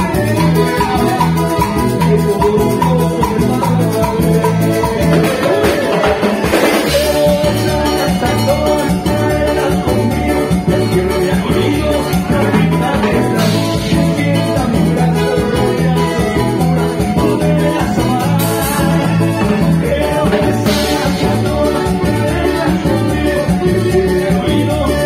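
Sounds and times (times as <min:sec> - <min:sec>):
live band through pa: 0:00.0 - 0:25.0
man singing into microphone: 0:00.0 - 0:25.0.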